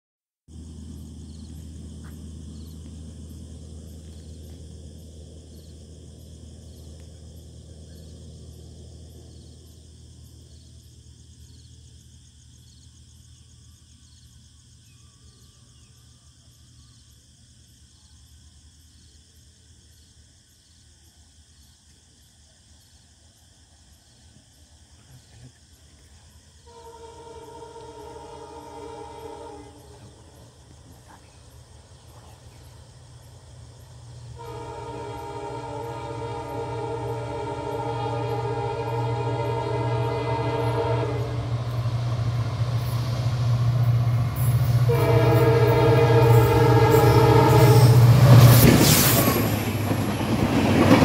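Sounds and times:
insects chirping: 0:00.5 - 0:51.0
train horn blast: 0:26.6 - 0:30.2, 0:34.3 - 0:49.5.

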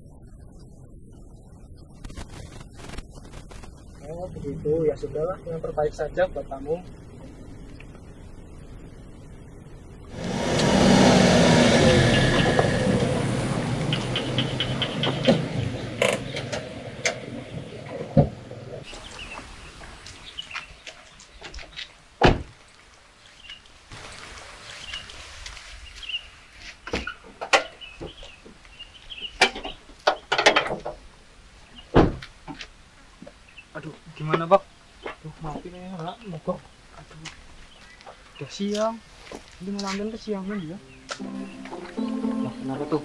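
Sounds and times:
car engine slowing down: 0:10.0 - 0:18.8.

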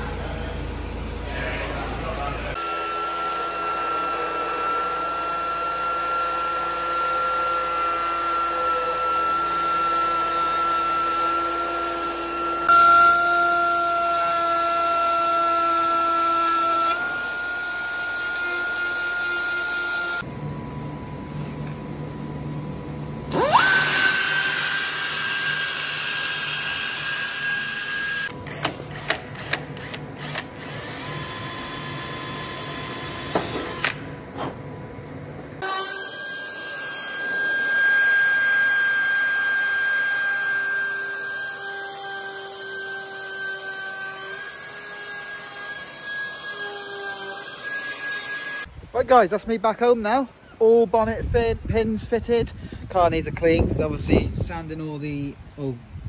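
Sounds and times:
power tools grinding and drilling: 0:02.6 - 0:20.2, 0:23.3 - 0:34.0, 0:35.6 - 0:48.7.

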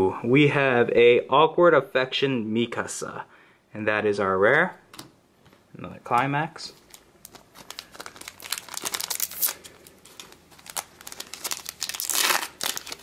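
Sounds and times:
foil wrapper crinkling and tearing: 0:06.8 - 0:13.0.

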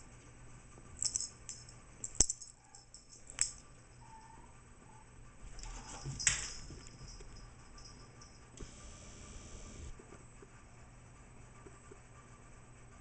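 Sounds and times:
collar tag jingling: 0:05.5 - 0:08.6.

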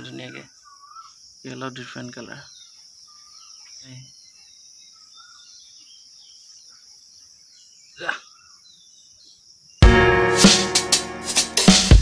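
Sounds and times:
faint bird chirps: 0:00.0 - 0:09.8
insects chirring: 0:00.0 - 0:09.8
music with drums: 0:09.8 - 0:12.0.

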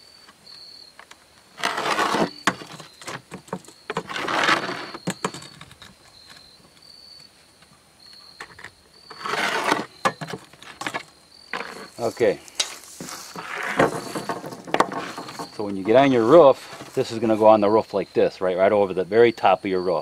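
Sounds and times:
knife rasping through shingle: 0:01.6 - 0:02.8, 0:09.1 - 0:11.0.

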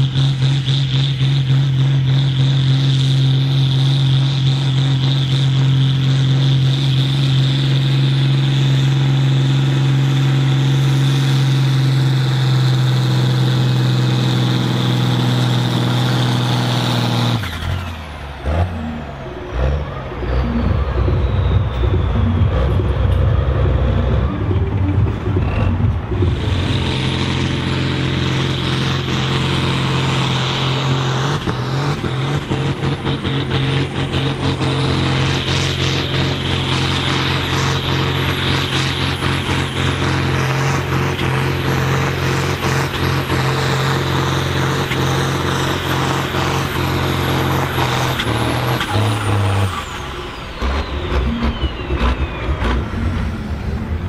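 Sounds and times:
heavy diesel tractor engine: 0:00.0 - 0:54.0
high turbo whistle: 0:20.2 - 0:24.6.

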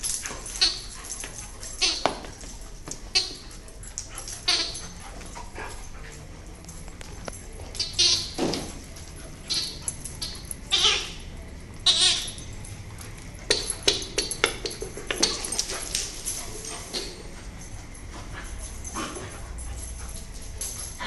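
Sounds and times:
dog claws clicking and scuffling: 0:00.0 - 0:11.0, 0:11.7 - 0:21.0
dogs crying high-pitched: 0:03.1 - 0:05.4, 0:09.4 - 0:12.6.

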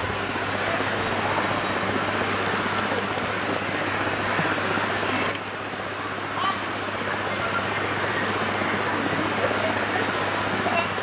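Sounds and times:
river water rushing over rocks: 0:00.0 - 0:11.0.

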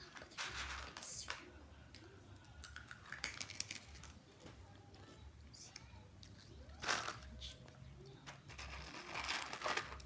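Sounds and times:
snacks clattering in a plastic bowl: 0:00.0 - 0:01.4, 0:02.6 - 0:04.2, 0:06.8 - 0:07.3, 0:08.3 - 0:10.0.

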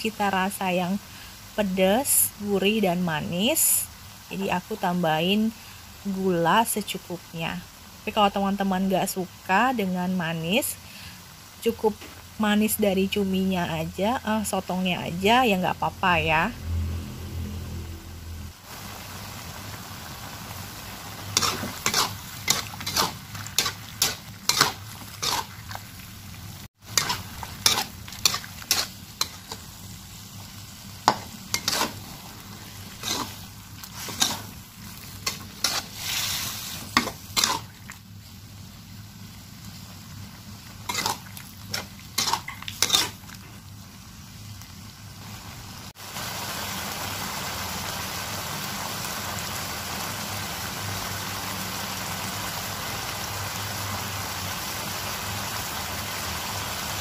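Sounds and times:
food sizzling in a pan: 0:00.0 - 0:57.0
spatula scraping a pan: 0:21.3 - 0:25.8, 0:26.9 - 0:29.7, 0:31.1 - 0:37.7, 0:40.8 - 0:43.2.

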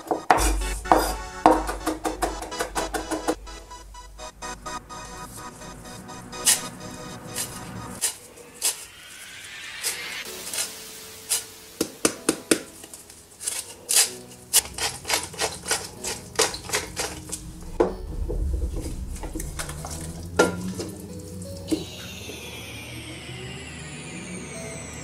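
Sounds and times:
lemon rubbed on metal grater: 0:13.4 - 0:17.4
wooden spoon scraping pot: 0:13.4 - 0:17.5.

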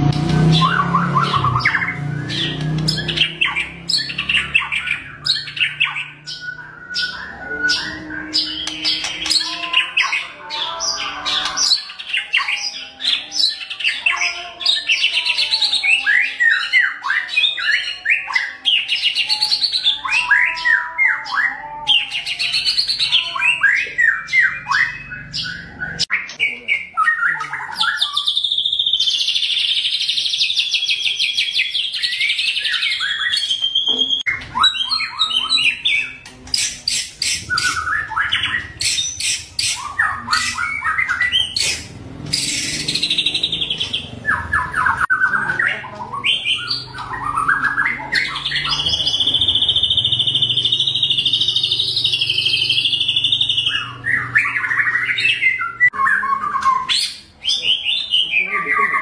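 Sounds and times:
songbird trilling and whistling: 0:00.3 - 0:59.0.

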